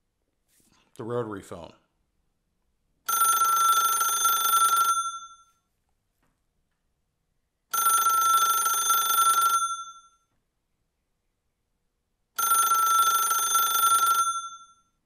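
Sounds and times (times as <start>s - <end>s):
telephone bell ringing: 3.1s - 5.7s, 7.7s - 10.3s, 12.4s - 15.0s.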